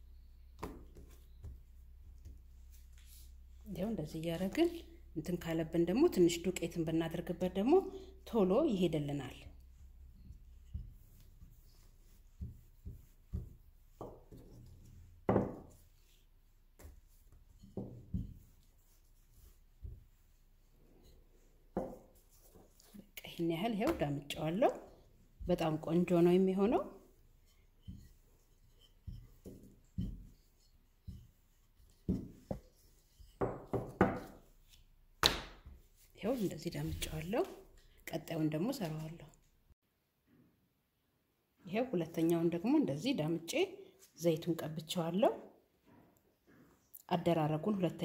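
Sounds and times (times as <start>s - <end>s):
rolling pin thumping and rubbing: 9.6s - 22.9s, 23.8s - 37.2s
rolling pin knocking on tabletop: 15.3s - 15.8s, 21.7s - 22.0s, 33.4s - 34.4s.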